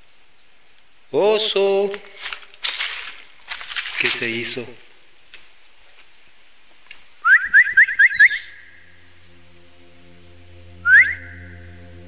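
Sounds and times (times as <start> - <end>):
bird calling with sharp rising notes: 7.2 - 12.0
steady low hum: 8.4 - 12.0.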